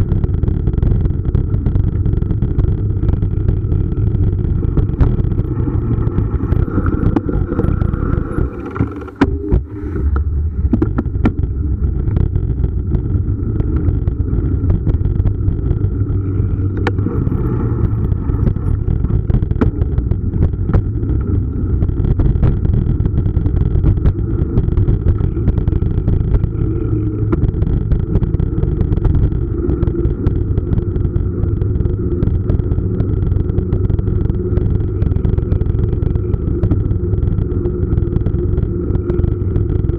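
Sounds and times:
bike tyres rolling on asphalt: 0.0s - 39.9s
wind rumble on microphone: 0.0s - 39.9s
bike clicks and knocks: 2.0s - 21.4s.

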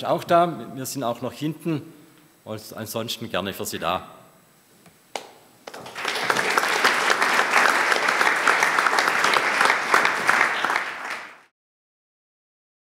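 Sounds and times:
audience applauding: 5.6s - 11.5s.

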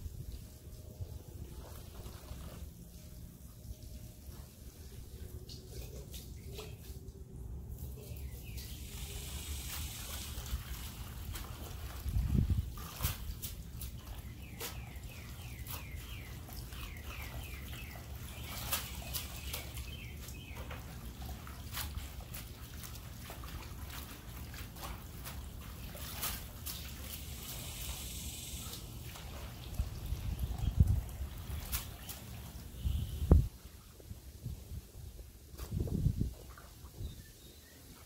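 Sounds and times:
hose water splashing on leaves: 7.7s - 33.5s.

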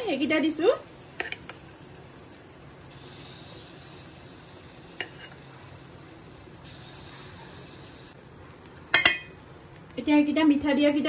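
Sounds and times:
batter sizzling in a pan: 0.0s - 11.0s.

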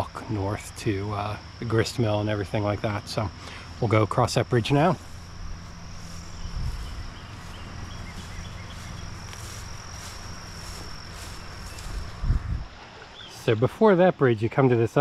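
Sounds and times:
insects buzzing: 0.0s - 15.0s
faint chirps: 4.6s - 12.4s
low rumble: 5.0s - 12.8s.

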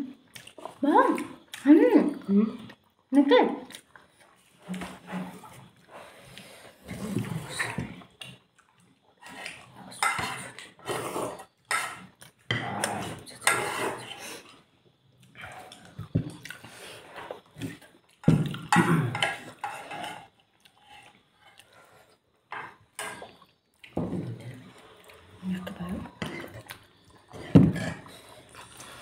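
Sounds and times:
spoons clinking on bowls: 18.7s - 20.2s.

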